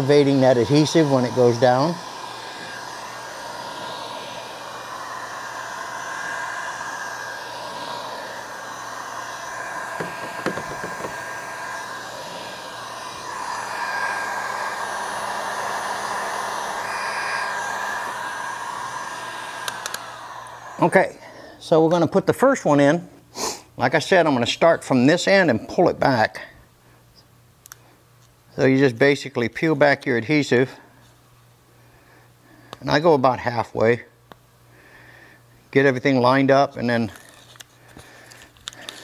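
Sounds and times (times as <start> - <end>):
heat gun blowing: 0.0 - 21.8, 37.1 - 39.0.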